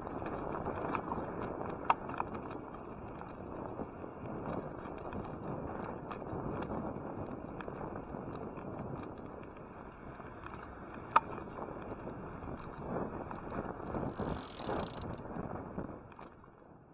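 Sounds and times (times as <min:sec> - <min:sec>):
bicycle clicking and rattling: 0:00.0 - 0:16.5
road and wind rumble: 0:00.0 - 0:16.9
sharp click: 0:13.5 - 0:15.2.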